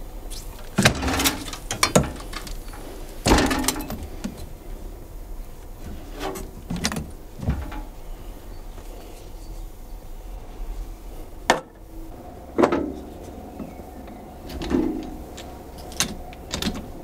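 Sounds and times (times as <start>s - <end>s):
metal knocks and clanks of machine: 0.8s - 4.4s, 6.2s - 8.0s, 11.5s - 17.0s.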